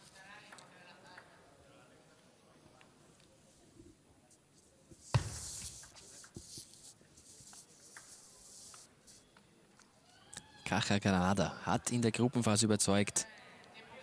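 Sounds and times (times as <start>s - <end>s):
sharp ball hit: 5.1s - 5.8s.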